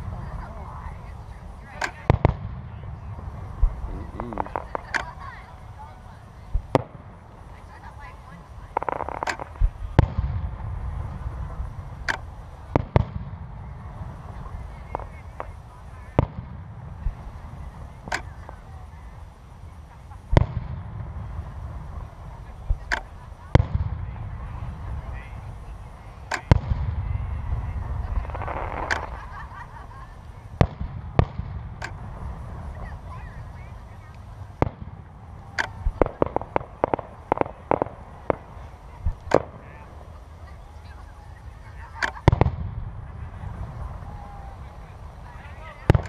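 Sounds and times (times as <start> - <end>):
low rumble: 0.0 - 19.7
fireworks exploding: 0.0 - 46.0.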